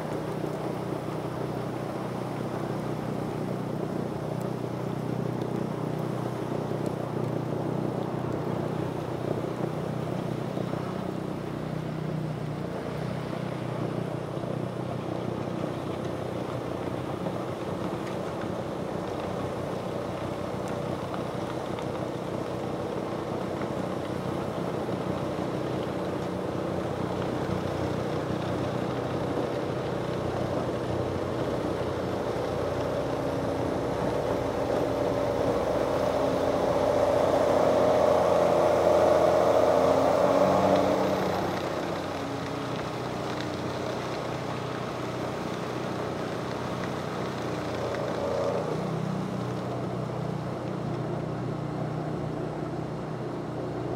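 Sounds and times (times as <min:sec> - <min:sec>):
snow blower churning snow: 0:00.0 - 0:53.9
tractor engine working hard: 0:13.6 - 0:53.9.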